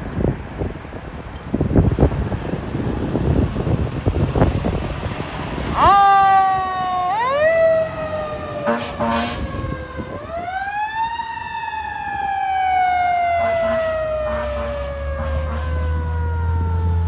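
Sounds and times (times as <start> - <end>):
air horn blasts: 8.6 - 9.5, 13.4 - 16.0.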